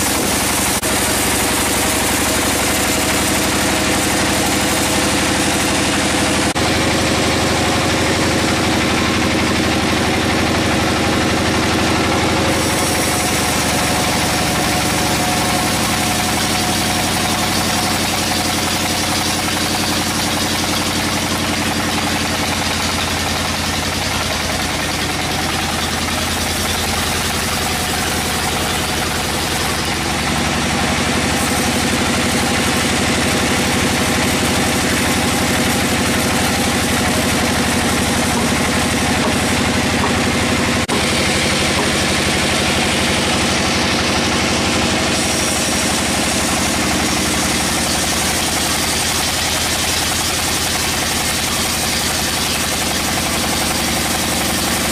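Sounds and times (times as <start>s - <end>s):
band saw cutting log: 0.0s - 54.9s
machine hum and hiss: 0.0s - 54.9s.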